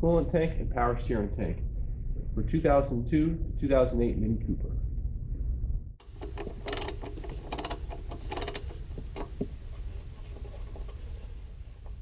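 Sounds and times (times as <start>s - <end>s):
socket ratchet clicking: 6.0s - 9.4s.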